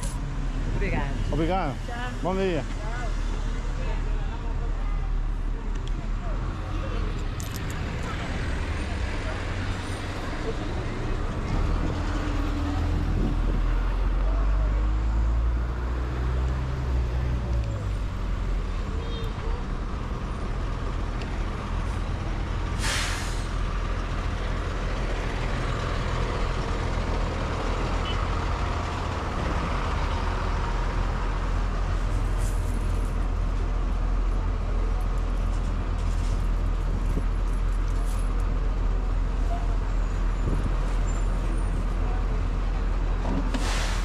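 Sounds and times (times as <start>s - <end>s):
bus engine running: 0.0s - 44.0s
low traffic rumble: 0.0s - 44.0s
air brakes hissing: 22.7s - 23.6s, 43.4s - 44.0s.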